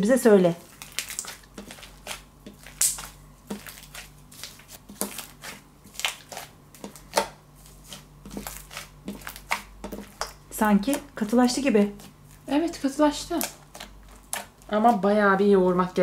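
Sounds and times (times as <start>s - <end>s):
slime squelching: 0.4s - 15.2s.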